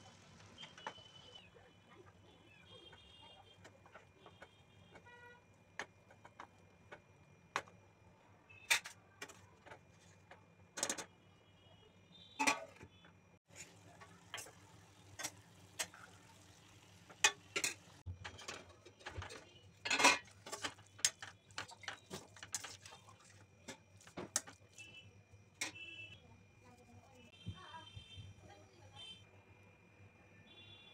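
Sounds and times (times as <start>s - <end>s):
spoon stirring and scraping pan: 12.4s - 25.8s.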